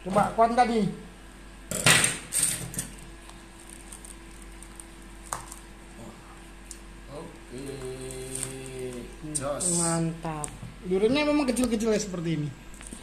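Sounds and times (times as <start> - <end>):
fruit husk cracking and tearing: 3.2 - 6.8.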